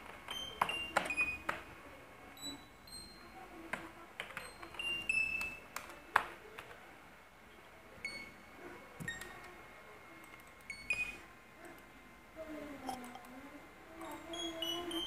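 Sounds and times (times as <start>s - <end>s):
keyboard typing clicks: 3.7s - 6.8s.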